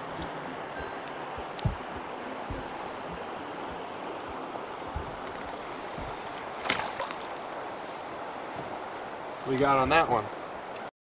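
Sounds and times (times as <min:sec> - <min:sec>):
flowing river water: 0:00.0 - 0:10.9
soft low thumps: 0:00.2 - 0:06.9
fish splashing: 0:04.9 - 0:07.7.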